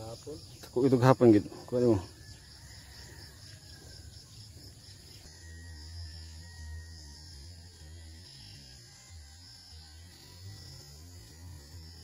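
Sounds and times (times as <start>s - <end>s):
insects chirring: 0.0s - 12.0s
low hum: 3.0s - 12.0s.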